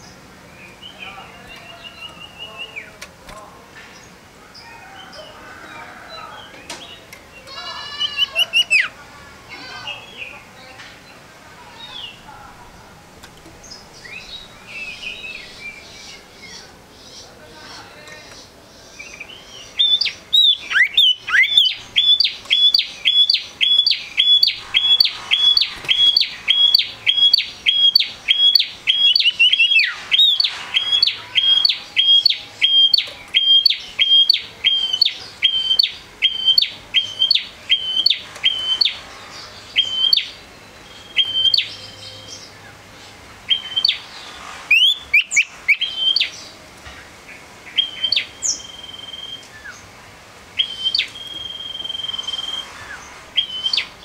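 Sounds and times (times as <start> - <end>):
bird singing high whistled notes: 19.4 - 39.0, 39.7 - 42.3, 43.5 - 44.0, 44.7 - 46.4, 47.8 - 49.8, 50.6 - 54.0.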